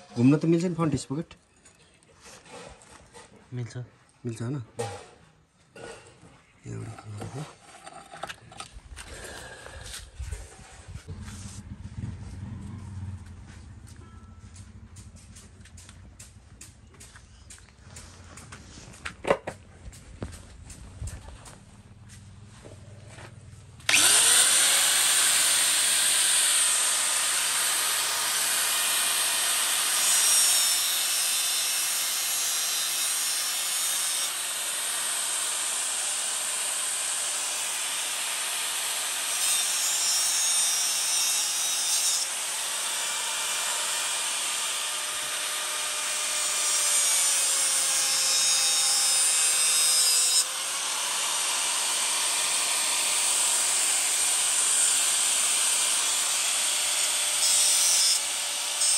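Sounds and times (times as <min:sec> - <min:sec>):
power tool motor running: 0:23.9 - 0:58.9.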